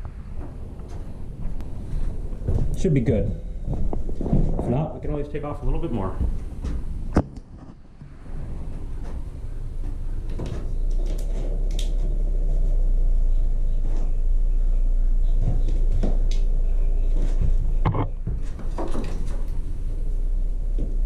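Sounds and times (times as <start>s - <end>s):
low rumble: 0.0s - 18.4s, 19.1s - 21.0s
wood strip knocking and scraping: 15.4s - 19.7s.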